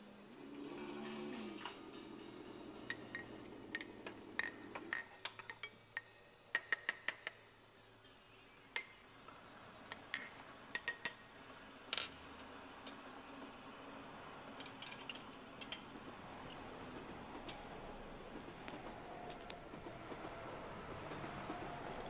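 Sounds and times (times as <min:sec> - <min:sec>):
light clinks and clicks: 0:14.6 - 0:15.9.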